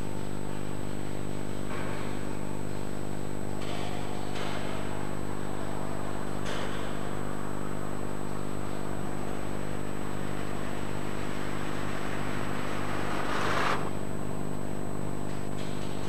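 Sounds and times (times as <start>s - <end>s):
low hum: 7.7s - 15.2s
rushing swell: 10.5s - 14.0s.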